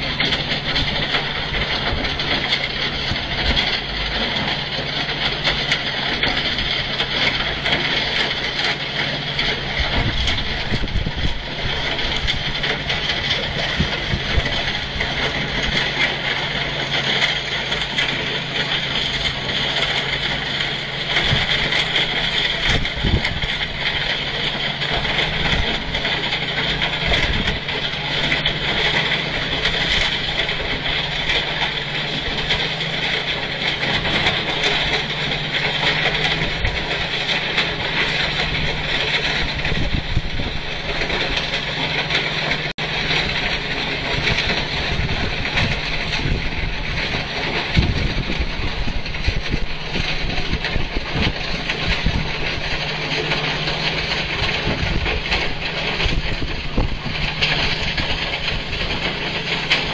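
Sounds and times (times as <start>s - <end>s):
diesel engines droning: 0.0s - 59.9s.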